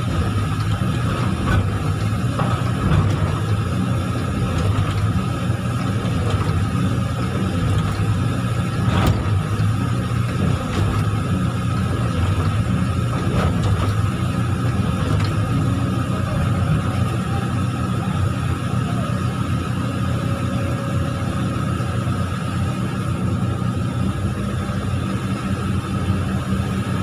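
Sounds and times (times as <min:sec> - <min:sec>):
diesel engine low rumble: 0:00.0 - 0:27.0.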